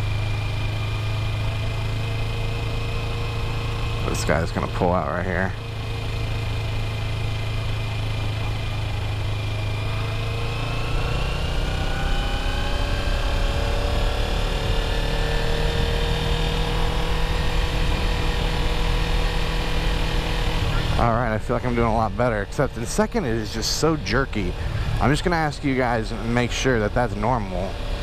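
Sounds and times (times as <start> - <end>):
motorcycle engine accelerating: 0.0 - 28.0
wind rumble on microphone: 16.6 - 19.0.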